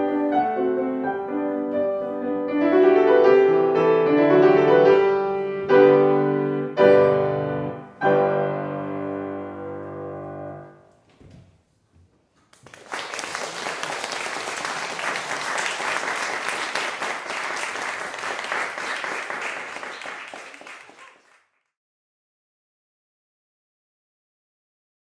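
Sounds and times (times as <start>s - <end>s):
audience applauding: 12.5s - 21.6s.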